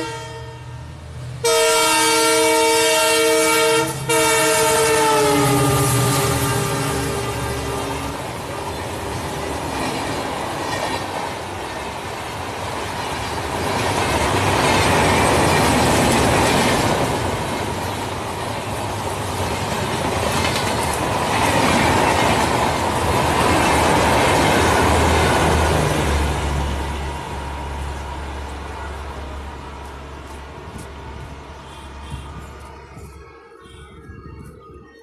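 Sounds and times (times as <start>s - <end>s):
train wheels on rails: 0.8s - 35.0s
clickety-clack over rail joints: 7.7s - 33.2s.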